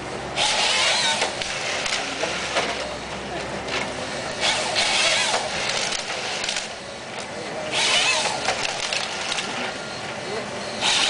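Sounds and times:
excavator running under load: 0:00.0 - 0:11.0
bar saw whining through log: 0:00.4 - 0:02.3, 0:04.3 - 0:06.6, 0:07.7 - 0:09.1, 0:10.7 - 0:11.0.

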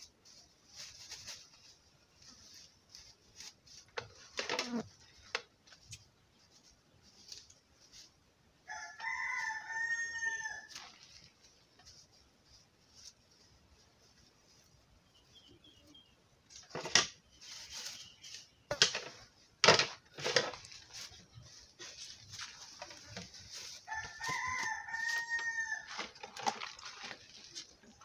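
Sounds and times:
plastic bag rustling: 0:00.0 - 0:05.4, 0:06.5 - 0:14.8, 0:16.5 - 0:28.0
rooster crowing: 0:08.7 - 0:10.8, 0:23.8 - 0:26.0.

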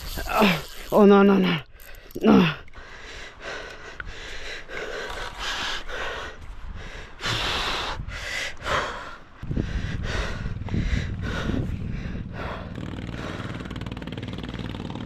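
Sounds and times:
man breathing heavily: 0:00.0 - 0:14.0
low rumble: 0:08.8 - 0:13.7.

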